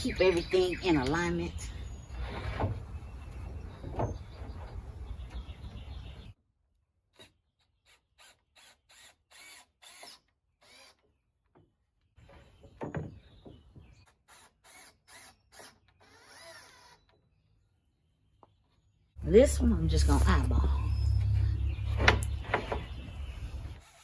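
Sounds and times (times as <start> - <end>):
cordless drill driving screws: 7.9 - 11.0, 14.2 - 17.1.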